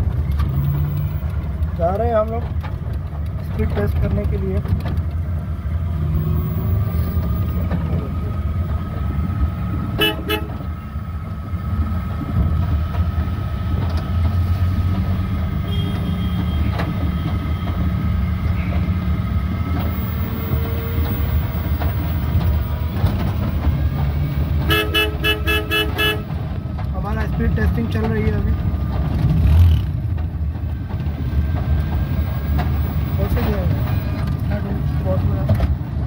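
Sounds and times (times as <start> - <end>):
road rumble in vehicle cabin: 0.0 - 36.0
vehicle horn toots: 10.0 - 10.7, 15.6 - 16.8, 24.6 - 26.3.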